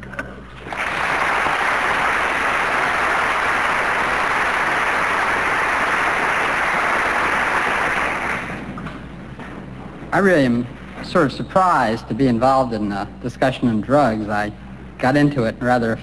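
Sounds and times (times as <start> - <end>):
audience applauding: 0.6 - 8.8.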